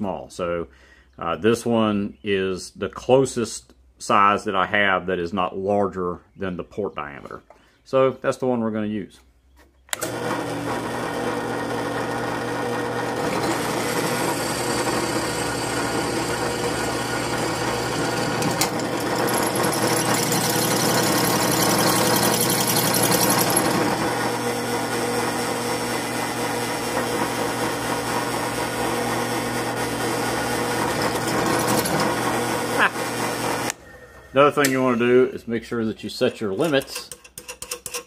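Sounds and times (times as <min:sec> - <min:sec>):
drill press motor hum: 0:09.9 - 0:34.4
hole saw grinding into steel: 0:13.0 - 0:24.2, 0:29.0 - 0:33.8, 0:36.6 - 0:38.0.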